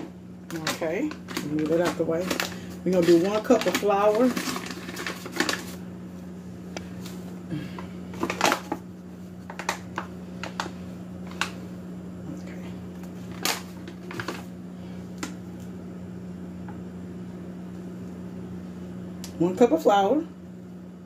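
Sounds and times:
steady low hum: 0.0s - 21.0s
paper bag crinkling: 0.5s - 5.8s, 13.2s - 14.5s.

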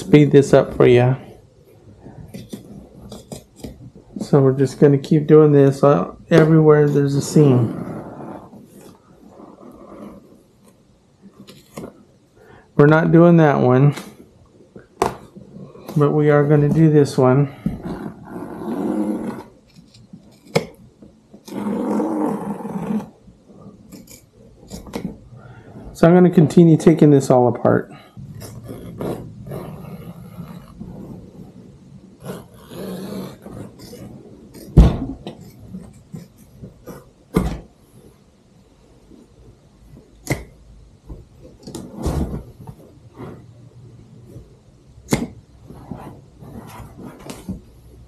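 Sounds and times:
seam ripping: 28.3s - 31.5s, 32.2s - 37.1s
sharp knocks and snaps: 40.2s - 40.5s.

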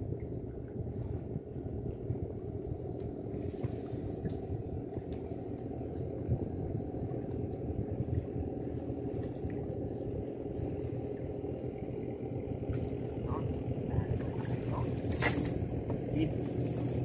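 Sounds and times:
engine running low rumble: 0.0s - 17.0s.

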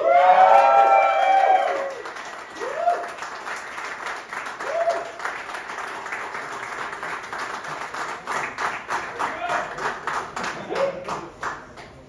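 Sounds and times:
person whooping: 0.0s - 2.0s, 2.6s - 3.2s, 4.6s - 5.1s
audience applauding: 0.0s - 12.0s.

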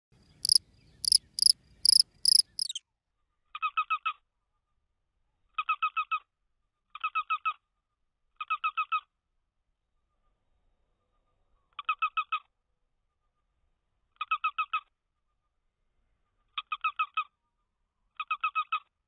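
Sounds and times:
rapid high chirps: 0.4s - 2.8s.

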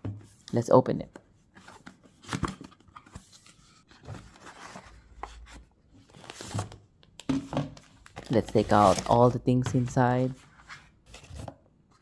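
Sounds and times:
packaging rustling: 6.0s - 10.2s.

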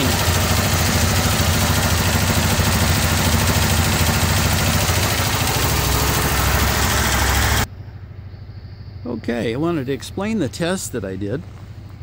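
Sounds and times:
generator engine running: 0.0s - 7.7s.

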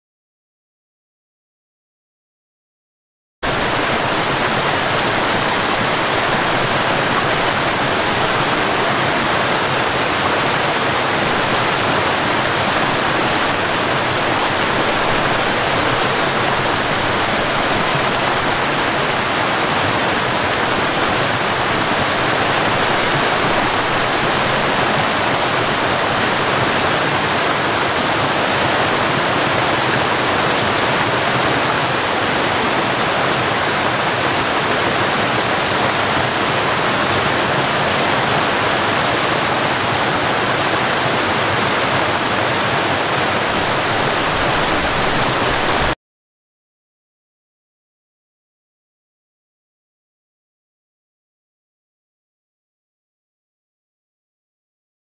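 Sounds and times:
waterfall rushing over rocks: 3.4s - 46.0s.

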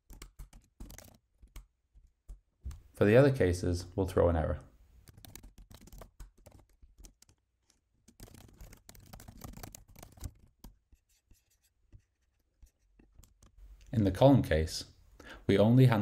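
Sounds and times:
keyboard typing: 0.0s - 2.8s, 5.0s - 13.6s.

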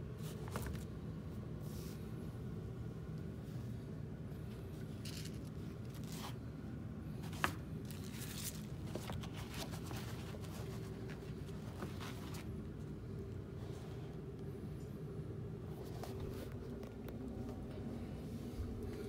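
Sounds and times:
steady low hum: 0.0s - 19.0s
handling noise rustling: 4.5s - 6.4s, 7.2s - 13.0s.

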